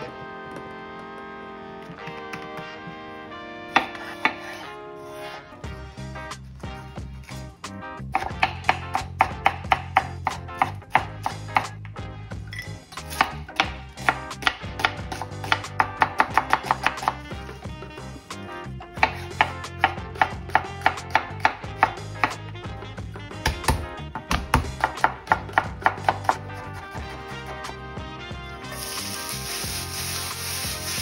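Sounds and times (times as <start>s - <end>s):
background music with bass: 0.0s - 31.0s
knife striking cutting board: 3.8s - 4.6s.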